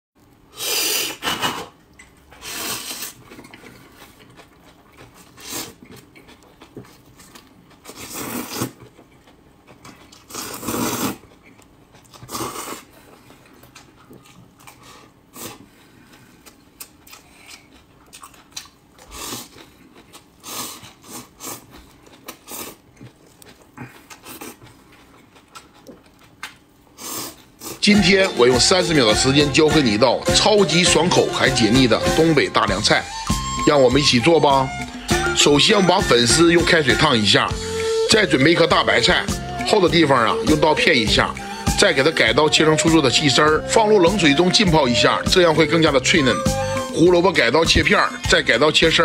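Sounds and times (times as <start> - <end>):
crunchy chewing: 2.4 - 27.8.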